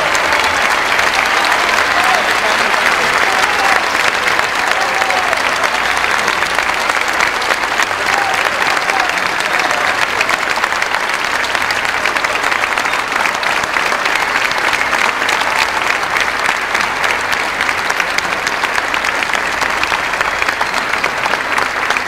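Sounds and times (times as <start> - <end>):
audience applauding: 0.0 - 22.0.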